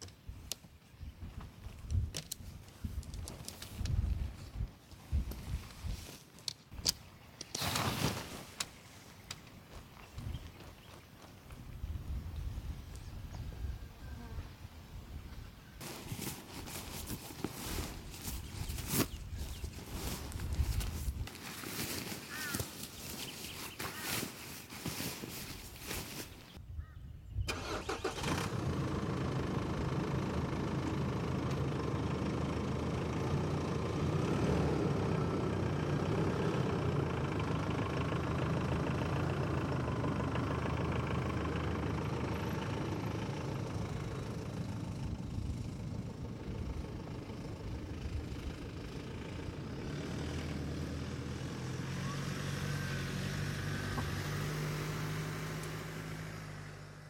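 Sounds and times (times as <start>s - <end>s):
road noise: 15.8s - 26.6s, 27.5s - 57.0s
car engine running: 28.3s - 52.2s.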